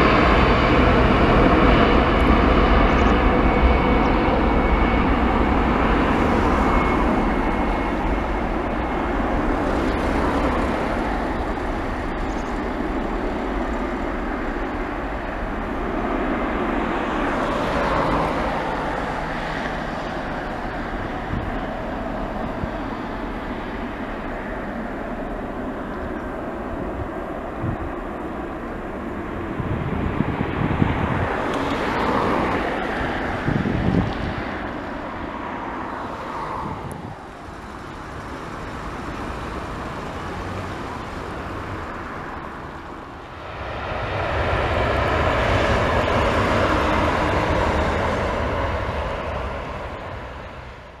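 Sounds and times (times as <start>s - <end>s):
jet engine noise: 0.0s - 51.0s.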